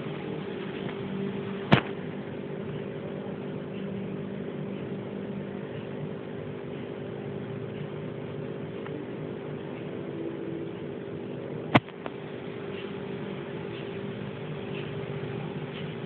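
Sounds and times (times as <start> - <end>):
machine hum: 0.0 - 16.0
sharp click: 11.7 - 12.2.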